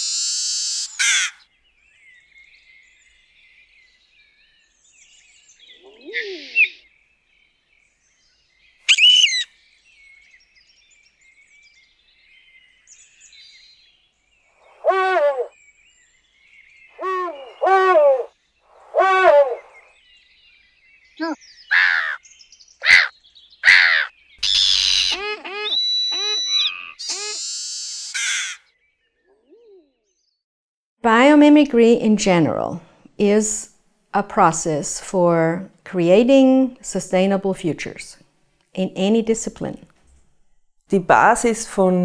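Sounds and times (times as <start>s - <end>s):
lower repeated bird calls: 0.0s - 1.5s, 4.8s - 7.1s, 8.4s - 11.9s, 14.3s - 30.4s
high bird chirps: 5.4s - 6.9s, 8.7s - 9.6s, 16.9s - 18.9s, 21.2s - 30.4s.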